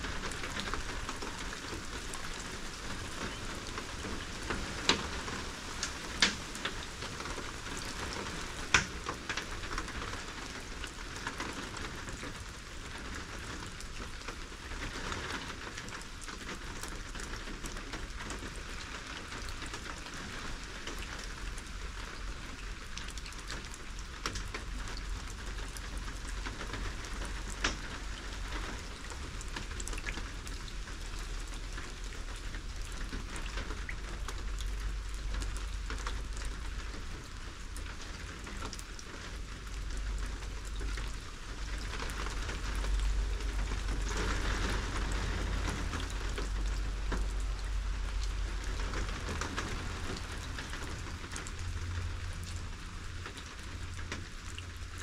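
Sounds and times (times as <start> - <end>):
steady rain falling: 0.0 - 55.0.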